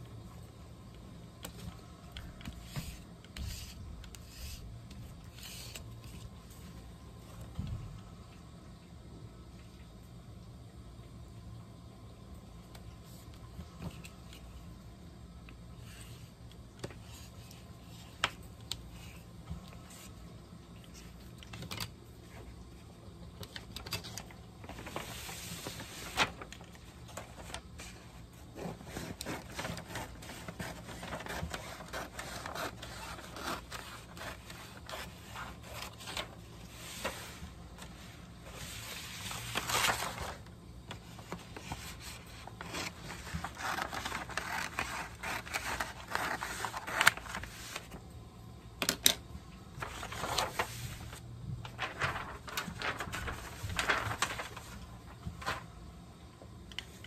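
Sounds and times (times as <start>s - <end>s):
paper rustling on a tabletop: 1.4s - 7.9s, 23.4s - 48.0s, 48.9s - 55.8s.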